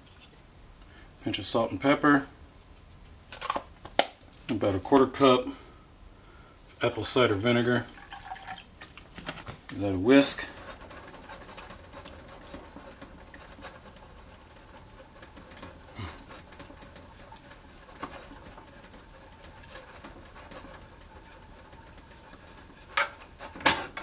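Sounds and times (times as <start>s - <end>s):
whisk swishing in sauce: 9.7s - 24.0s
whisk tapping against pan: 10.6s - 24.0s.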